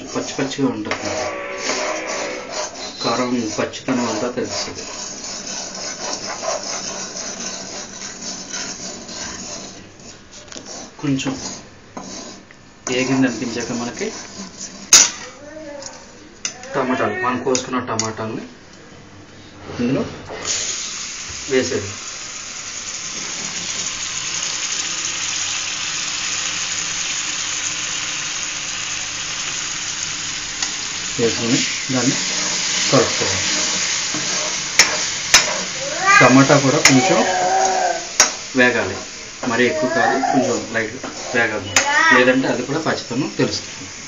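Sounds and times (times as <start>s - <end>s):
ladle scraping metal pan: 0.0s - 15.2s, 30.6s - 35.8s
spices frying in oil: 3.0s - 15.2s, 20.5s - 44.0s.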